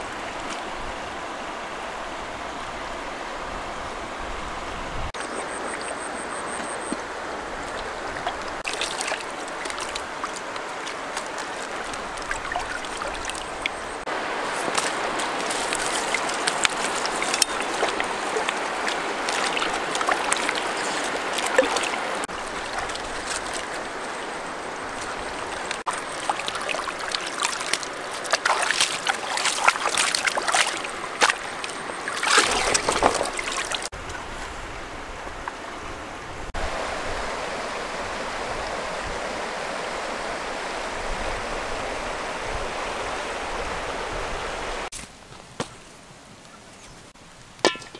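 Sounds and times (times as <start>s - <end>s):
stream running over stones: 0.0s - 47.9s
hands splashing in water: 7.7s - 13.9s, 14.5s - 24.2s, 24.9s - 33.9s.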